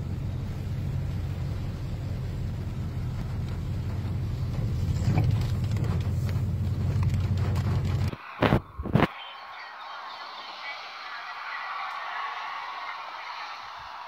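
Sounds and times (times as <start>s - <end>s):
low rumble: 0.0s - 9.1s
rain on car windshield: 0.0s - 9.1s
windshield wipers: 0.5s - 9.1s.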